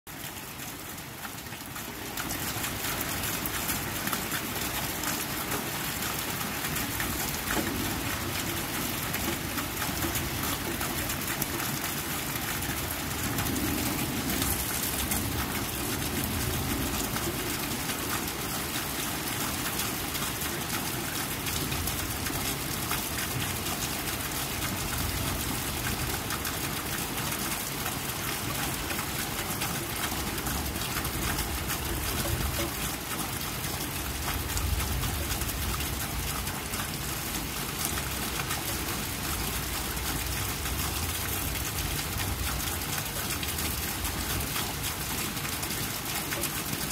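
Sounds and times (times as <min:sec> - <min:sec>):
rain falling on a puddle: 0:00.1 - 0:46.9.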